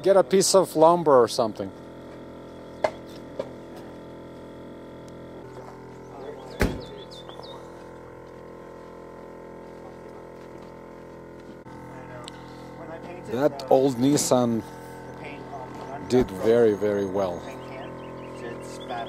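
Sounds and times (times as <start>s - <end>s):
loud thump: 6.6s - 6.9s.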